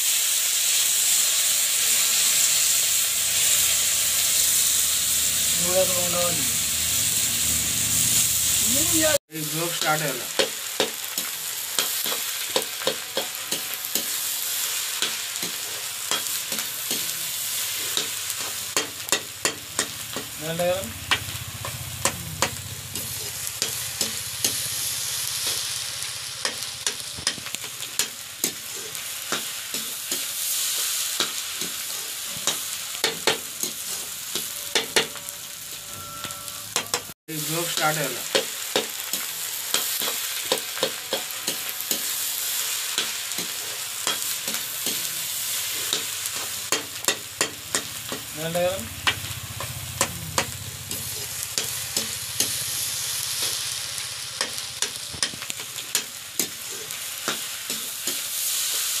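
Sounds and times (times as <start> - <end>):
eggs sizzling in a wok: 0.0 - 59.0
spatula scraping a pan: 38.0 - 48.3.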